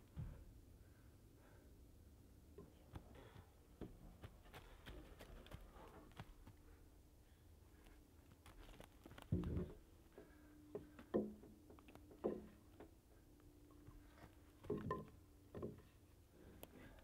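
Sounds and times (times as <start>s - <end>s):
wooden beam knocking on wood: 10.8s - 11.6s, 12.2s - 12.6s, 14.7s - 15.8s.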